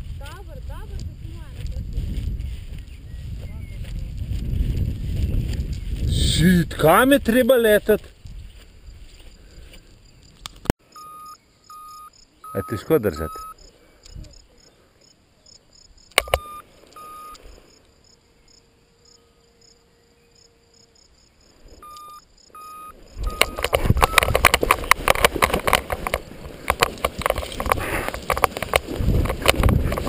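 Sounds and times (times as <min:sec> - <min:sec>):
wind buffeting microphone: 0:00.0 - 0:10.5, 0:23.0 - 0:30.0
short electronic beeps: 0:10.9 - 0:13.6, 0:16.2 - 0:17.4, 0:21.8 - 0:24.5.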